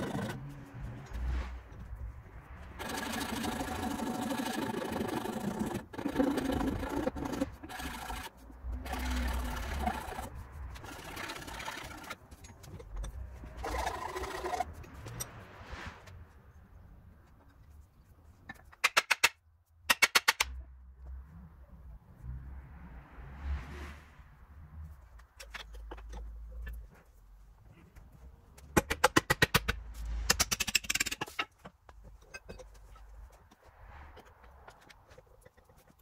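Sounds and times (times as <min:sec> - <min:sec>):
file rasping on wood: 0:02.8 - 0:12.2.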